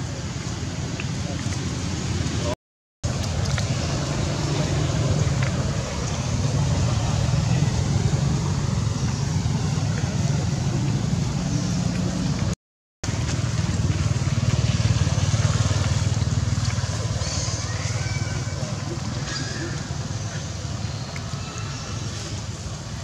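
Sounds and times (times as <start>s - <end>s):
low rumbling background noise: 0.0s - 23.0s.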